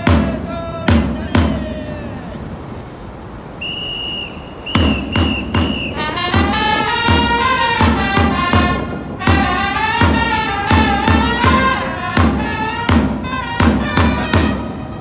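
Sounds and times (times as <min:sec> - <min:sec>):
whistle blasts: 0:03.6 - 0:07.8
trumpets playing cheer melody: 0:03.6 - 0:15.0.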